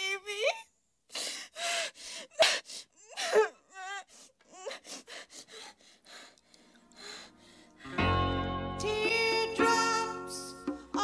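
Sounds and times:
woman sobbing and whimpering: 0:00.0 - 0:06.4.

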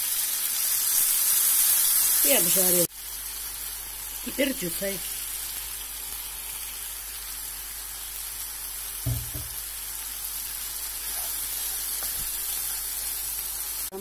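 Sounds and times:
vegetables sizzling in a frying pan: 0:00.0 - 0:14.0
short low thump: 0:09.0 - 0:09.6.

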